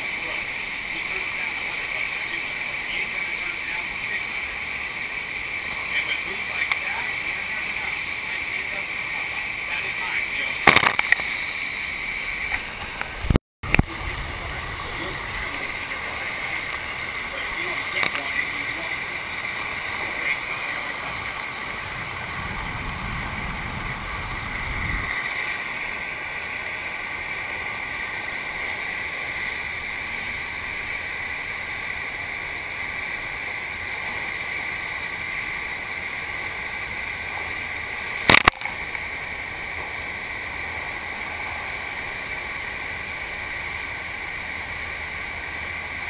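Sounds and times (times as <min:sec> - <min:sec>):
rushing water from wave machine: 0:00.0 - 0:46.0
sharp click: 0:10.6 - 0:11.2, 0:38.3 - 0:38.7.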